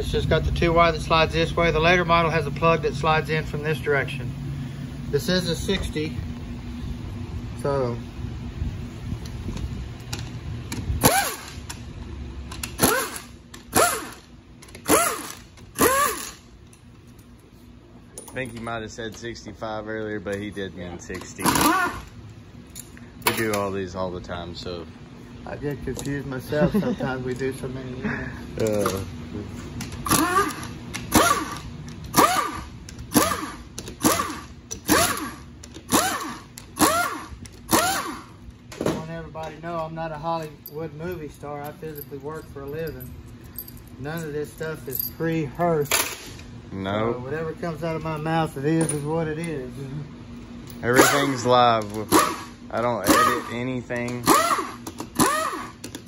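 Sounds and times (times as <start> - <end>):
power wrench whining: 10.2 - 11.8, 12.5 - 16.5, 21.2 - 22.2, 29.8 - 38.4, 50.8 - 56.0
air tool spinning: 11.0 - 11.7, 12.5 - 16.5, 21.4 - 22.2, 30.0 - 38.4, 52.0 - 56.0.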